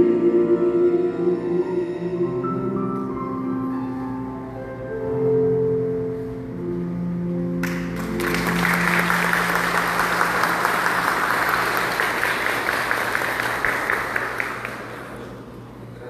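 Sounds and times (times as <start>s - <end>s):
congregation applauding: 7.6s - 15.5s.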